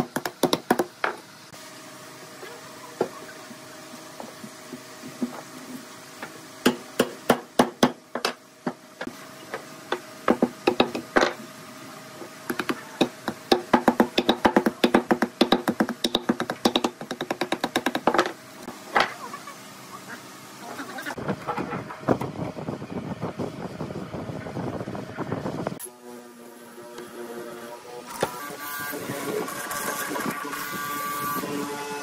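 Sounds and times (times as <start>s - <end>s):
wooden mallet knocking wood: 12.5s - 18.3s.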